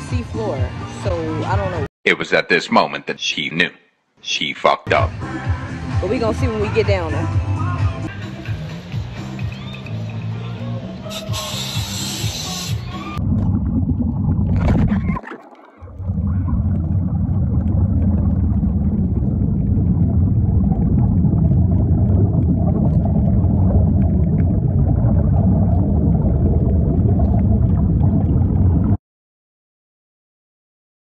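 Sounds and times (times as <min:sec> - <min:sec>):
underwater rumble and gurgle: 0:13.2 - 0:29.0.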